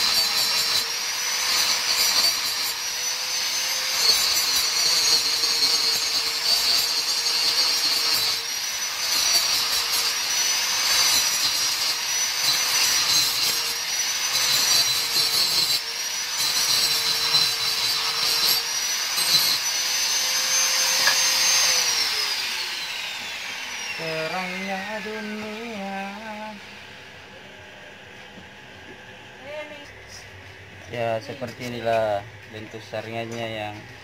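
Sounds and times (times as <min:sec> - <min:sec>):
grinder disc rasping on metal: 0:00.0 - 0:26.5
angle grinder motor whining: 0:00.0 - 0:30.2.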